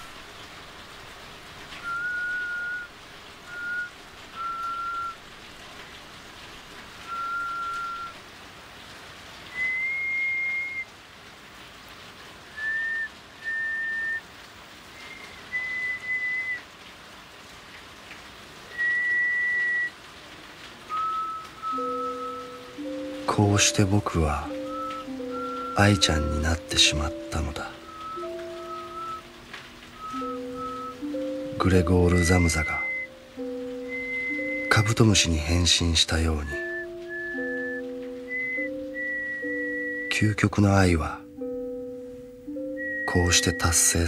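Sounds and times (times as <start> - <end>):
background hiss: 0.0 - 44.0
person whistling slow tune: 1.8 - 5.2, 7.0 - 8.2, 9.5 - 10.9, 12.5 - 14.2, 14.9 - 16.6, 18.7 - 20.0, 20.9 - 29.3, 30.0 - 35.6, 36.3 - 41.9, 42.5 - 44.0.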